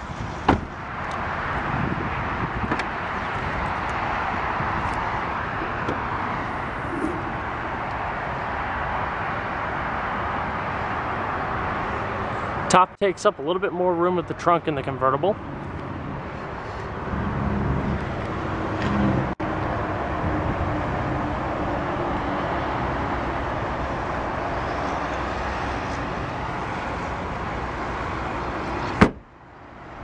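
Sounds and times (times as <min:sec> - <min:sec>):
outdoor background noise: 0:00.0 - 0:30.0
car trunk lid slamming: 0:28.9 - 0:29.2.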